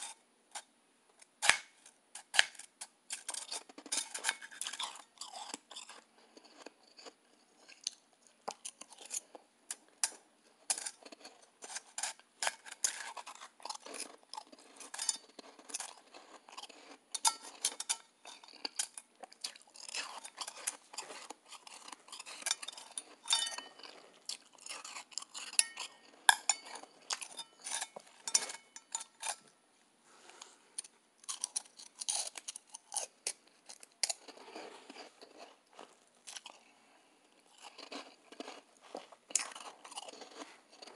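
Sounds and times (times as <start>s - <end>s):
crunching and chewing ice: 1.4s - 29.5s, 30.8s - 40.9s
spoon clinking on metal bowl: 22.5s - 23.9s, 25.5s - 29.4s.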